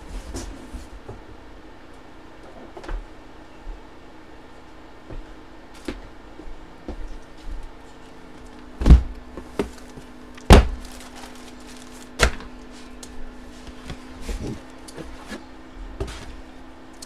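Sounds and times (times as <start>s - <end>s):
faint steady hum: 0.0s - 17.0s
cardboard boxes thunking on table: 10.5s - 10.9s.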